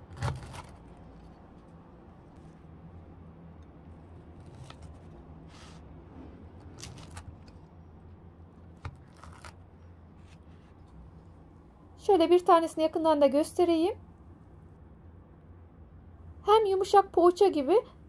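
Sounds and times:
knife cutting bread crust: 0.0s - 1.4s, 4.3s - 7.6s, 8.8s - 11.0s
low steady hum: 0.0s - 18.0s.

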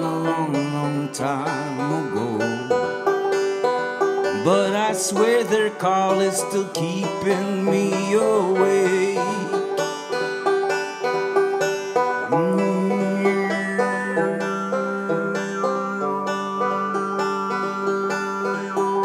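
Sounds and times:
man singing wordless long notes: 0.0s - 3.0s, 4.3s - 9.9s, 12.2s - 18.8s
banjo picking: 0.0s - 19.0s.

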